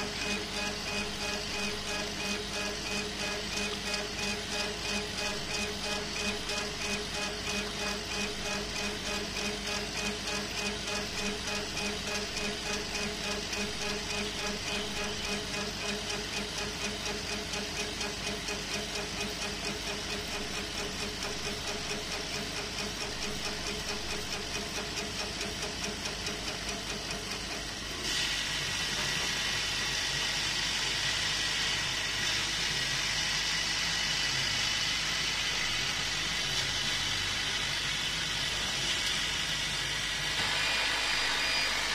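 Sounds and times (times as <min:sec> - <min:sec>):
laser engraver gantry motors pulsing: 0:00.0 - 0:27.9, 0:40.4 - 0:41.9
machine noise: 0:00.0 - 0:31.0, 0:35.1 - 0:41.9
bright hiss with whine: 0:27.9 - 0:41.9.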